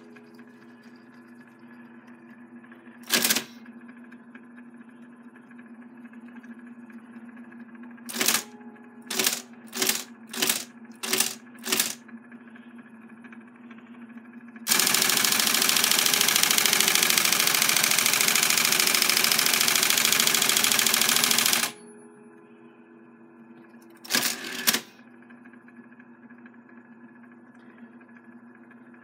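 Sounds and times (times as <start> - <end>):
electric typewriter typing: 3.0 - 3.6, 8.1 - 12.0, 14.7 - 21.8, 24.0 - 24.9
loud mechanical rattle: 3.0 - 3.6, 8.1 - 8.5, 9.1 - 12.0, 14.6 - 21.8, 24.0 - 24.9
typewriter motor humming: 3.0 - 3.7, 8.1 - 12.0, 14.6 - 21.8, 23.9 - 25.0.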